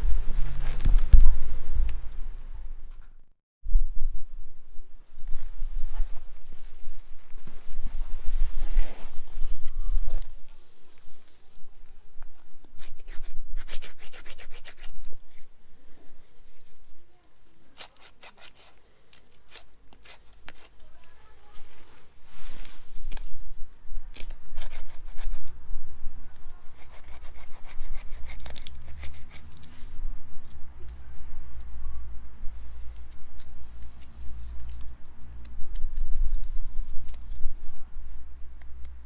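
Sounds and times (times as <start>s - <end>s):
knife scraping wooden stick: 12.6s - 15.5s, 17.6s - 21.2s, 24.1s - 25.5s, 26.6s - 30.6s.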